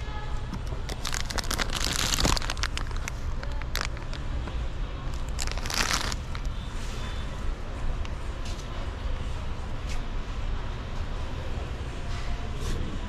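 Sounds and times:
foil bag crinkling: 0.9s - 4.2s, 5.2s - 6.5s.

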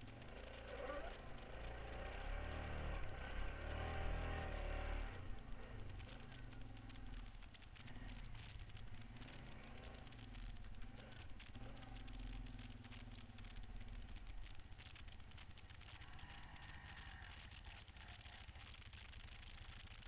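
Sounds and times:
quad bike engine revving: 0.0s - 14.2s.

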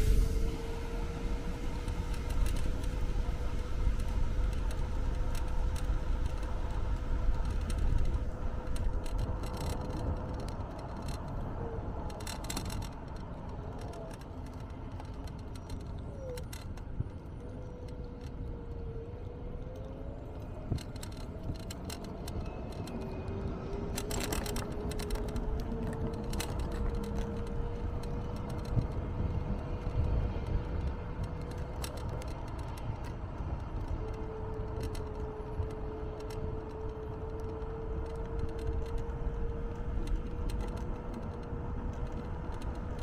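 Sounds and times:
rumble of wheels and wind: 0.0s - 43.0s
electric scooter motor whine: 16.9s - 43.0s.

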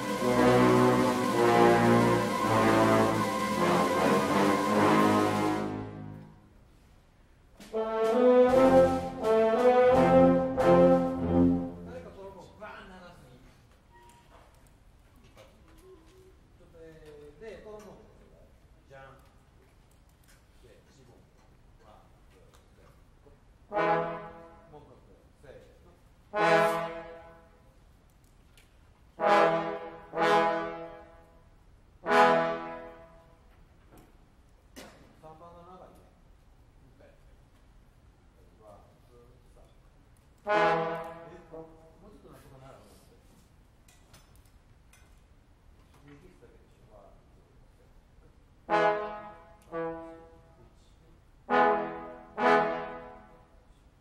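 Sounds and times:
short musical notes: 0.0s - 6.5s, 7.8s - 12.2s
brass instruments playing notes: 0.0s - 6.6s, 7.6s - 12.4s, 23.6s - 24.9s, 26.3s - 27.8s, 29.1s - 33.5s, 40.4s - 42.0s, 48.6s - 50.8s, 51.4s - 53.7s.

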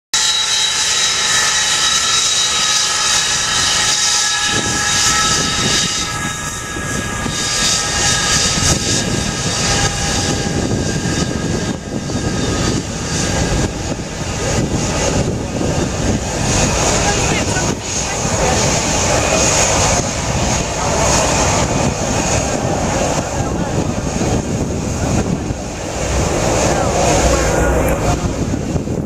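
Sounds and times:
jet engines whining: 0.2s - 29.0s
deep rumble: 4.4s - 29.0s.

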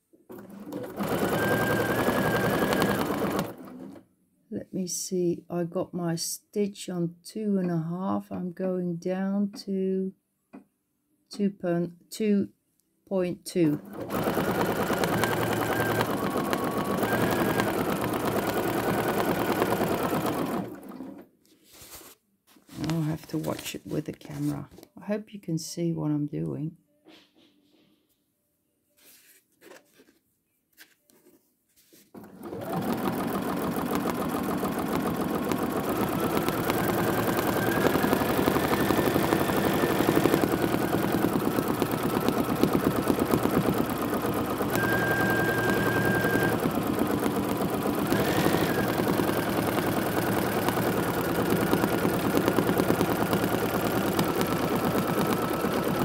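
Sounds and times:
sewing machine stitching: 0.3s - 4.0s, 13.7s - 21.3s, 32.1s - 56.0s.

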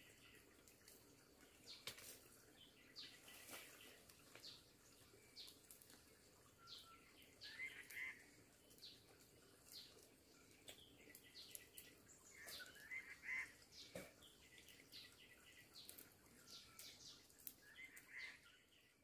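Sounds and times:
birds chirping: 0.0s - 19.0s
bird warbling call: 6.6s - 8.2s, 12.3s - 13.9s, 17.7s - 18.5s.

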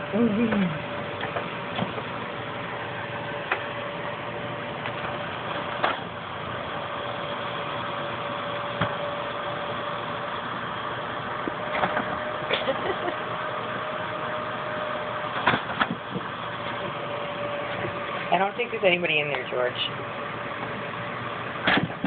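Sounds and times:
short falling whine: 0.0s - 1.3s
faint constant hum: 0.0s - 22.0s.

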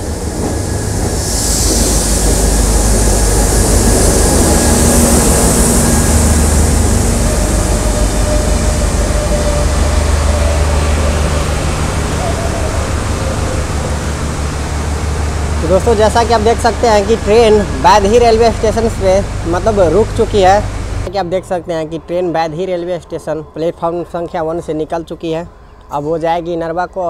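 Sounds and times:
hiss: 0.0s - 14.1s
diesel engine rumbling: 0.0s - 24.8s.

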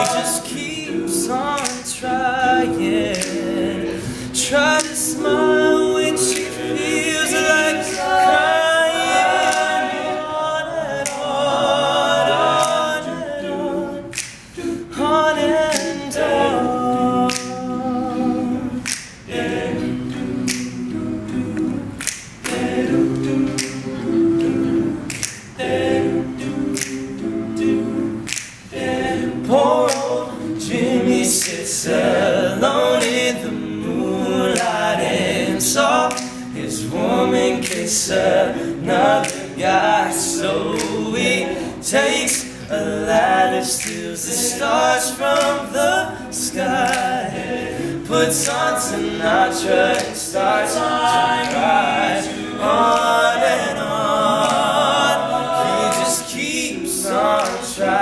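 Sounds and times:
sharp percussive clicks: 0.0s - 2.1s, 3.1s - 4.0s, 6.2s - 10.0s, 12.6s - 13.1s, 14.1s - 14.6s, 18.8s - 19.4s, 20.1s - 25.8s, 26.4s - 29.0s, 29.7s - 31.8s, 36.0s - 37.0s, 37.6s - 38.5s, 39.1s - 41.3s
male group singing a cappella: 0.0s - 58.0s.

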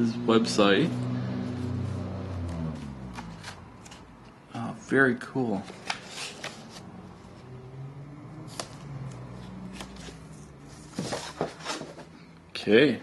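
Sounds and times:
paper rustling: 5.6s - 6.8s, 9.8s - 12.0s.

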